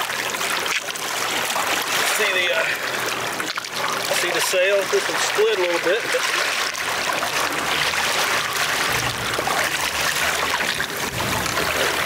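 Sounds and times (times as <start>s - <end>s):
water splashing along boat: 0.0s - 12.0s
low rumble: 8.8s - 12.0s.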